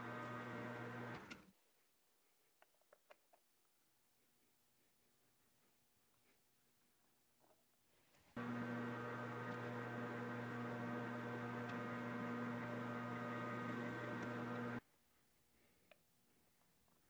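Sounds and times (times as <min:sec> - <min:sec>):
metal lathe motor humming: 0:00.0 - 0:01.3, 0:08.4 - 0:14.8.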